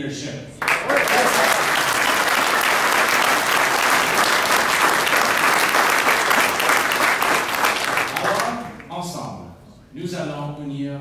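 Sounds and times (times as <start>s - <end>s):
audience applauding: 0.6s - 8.9s.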